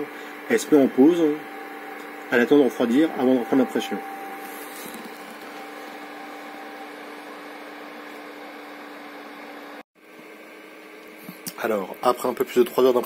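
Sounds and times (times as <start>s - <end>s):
printer motor and fans humming: 0.0s - 13.0s
faint high tone: 2.4s - 7.0s.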